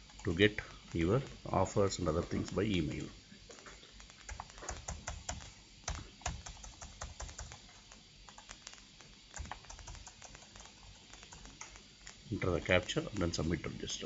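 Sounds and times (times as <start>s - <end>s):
keyboard keys clicking: 4.0s - 11.8s.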